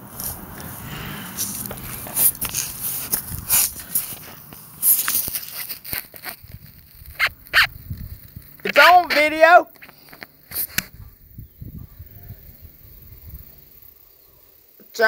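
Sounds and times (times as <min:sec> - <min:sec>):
phone rubbing against clothing: 0:00.2 - 0:07.8, 0:10.5 - 0:11.0.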